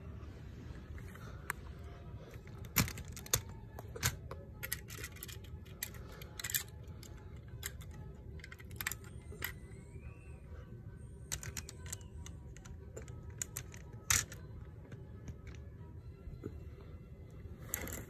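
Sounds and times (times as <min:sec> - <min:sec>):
plastic bricks clicking: 0:02.4 - 0:09.6, 0:11.3 - 0:15.6.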